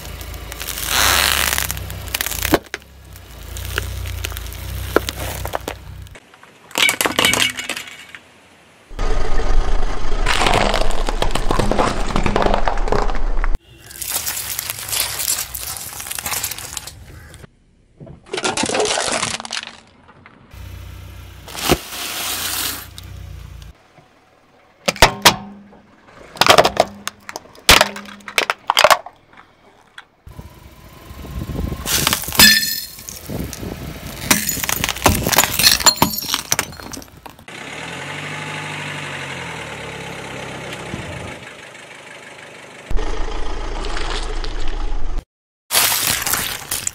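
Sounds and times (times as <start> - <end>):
tyre crushing objects: 0.0 - 6.1, 10.2 - 17.3, 21.5 - 22.9, 34.2 - 37.4
low rumble of car: 0.0 - 6.4, 20.0 - 45.2.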